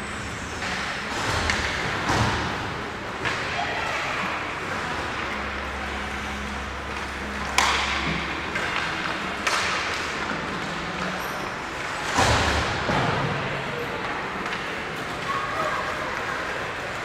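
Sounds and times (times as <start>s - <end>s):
hockey stick hitting puck: 7.4s - 10.6s.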